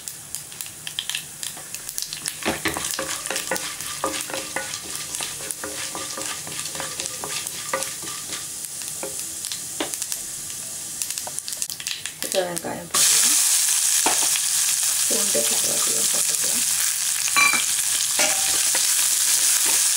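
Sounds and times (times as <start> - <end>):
seeds sizzling in hot oil: 0.0 - 19.9
wooden spatula scraping pan: 2.4 - 9.2.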